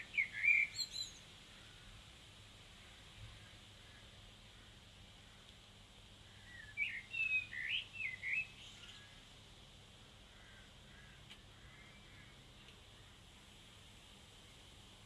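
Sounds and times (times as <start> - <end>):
bird chirping: 0.0 - 1.3, 6.4 - 9.2
faint steady hum: 0.0 - 15.0.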